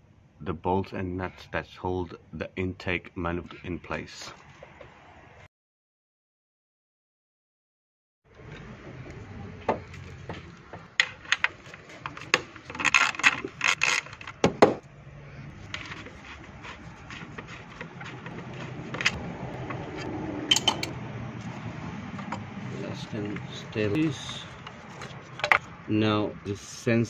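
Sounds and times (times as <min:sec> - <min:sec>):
metal tools clinking and scraping: 0:15.6 - 0:21.0, 0:22.2 - 0:25.7.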